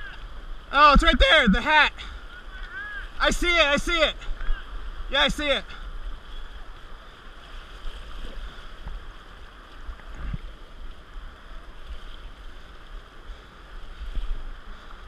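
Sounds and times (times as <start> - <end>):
river water flowing: 0.0 - 15.0
wind buffeting the microphone: 9.8 - 15.0.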